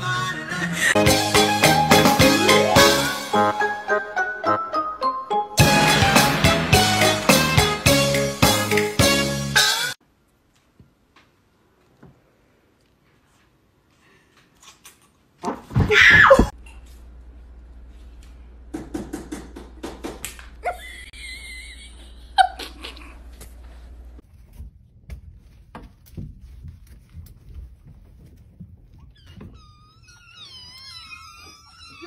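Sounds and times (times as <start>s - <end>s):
kittens mewing: 29.2s - 32.0s.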